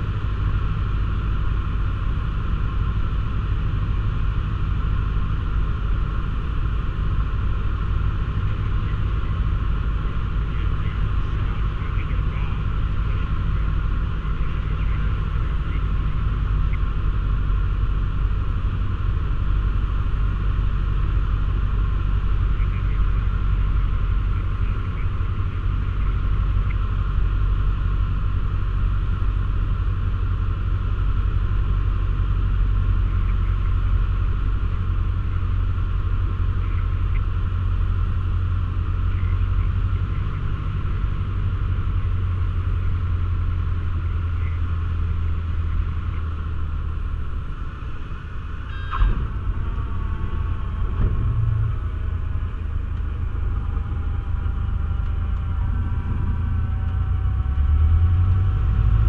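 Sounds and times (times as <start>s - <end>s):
light aircraft engine droning: 0.0s - 59.0s.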